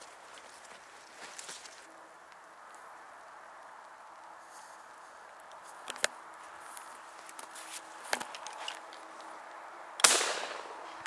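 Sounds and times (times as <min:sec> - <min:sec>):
steps through tall grass: 0:00.0 - 0:01.9, 0:06.4 - 0:09.2
shotgun shot: 0:10.0 - 0:10.9.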